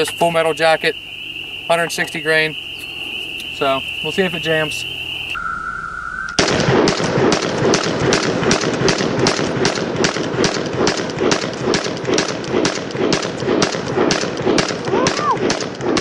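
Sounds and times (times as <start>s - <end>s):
pistol firing rapid shots: 6.4s - 16.0s.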